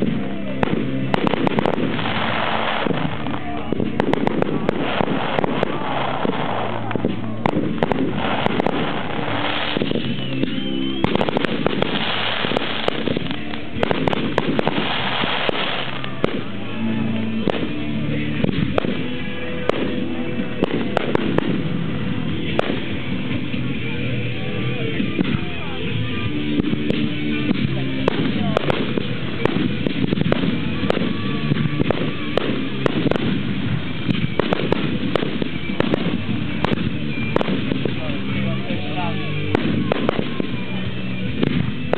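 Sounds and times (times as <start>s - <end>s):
crackling hiss of fireworks: 0.0s - 41.9s
fireworks cracks and bangs: 0.0s - 41.9s
firework whistle: 1.2s - 16.6s.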